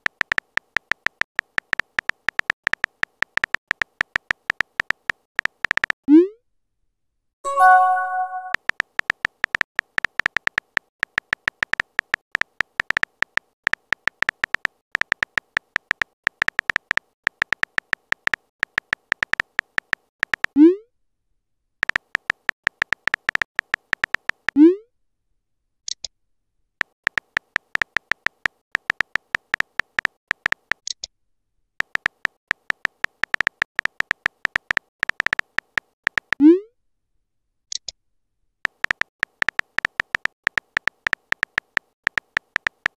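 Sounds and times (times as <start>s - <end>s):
synthetic key-tap clicks: 0.0s - 6.0s, 7.5s - 20.6s, 21.8s - 24.6s, 27.1s - 31.0s, 31.8s - 36.4s, 38.7s - 42.9s
high blips: 7.5s - 8.6s.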